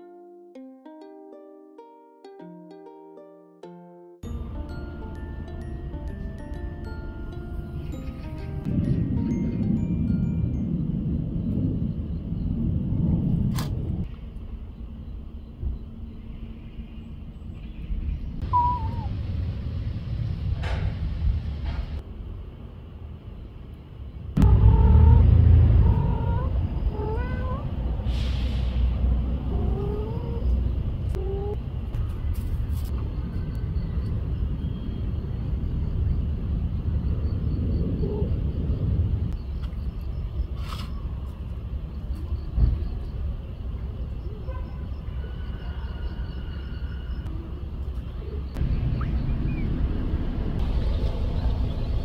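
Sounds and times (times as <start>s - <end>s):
low rumble: 4.2s - 23.4s, 24.0s - 44.3s, 48.5s - 52.0s
cat meowing: 25.8s - 27.7s, 29.5s - 31.6s.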